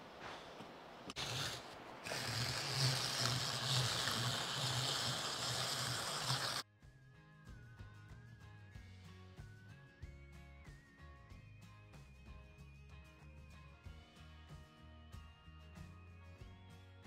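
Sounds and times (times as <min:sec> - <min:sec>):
hand-cranked shredder grinding: 0:01.1 - 0:06.6.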